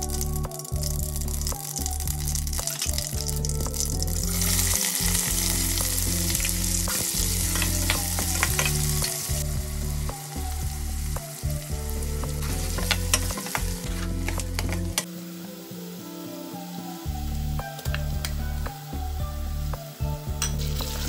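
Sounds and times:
onions sizzling in hot oil: 0.0s - 21.0s
metal spoon stirring in pot: 3.9s - 9.4s, 12.4s - 15.0s.

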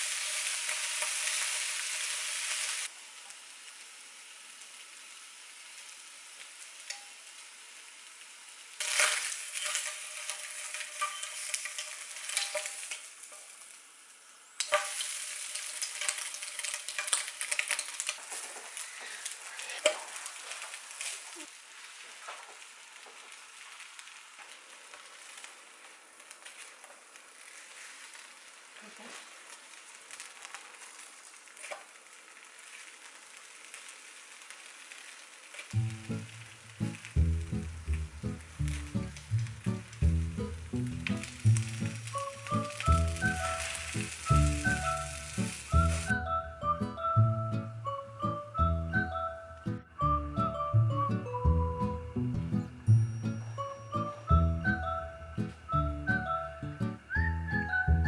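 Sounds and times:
food sizzling in a frying pan: 0.0s - 58.0s
utensil scraping and clicking on pan: 8.8s - 13.1s, 14.6s - 21.1s.

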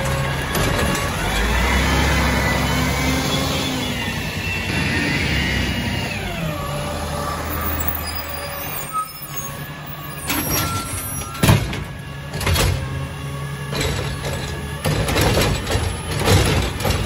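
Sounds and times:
diesel truck engine running: 0.0s - 10.2s.

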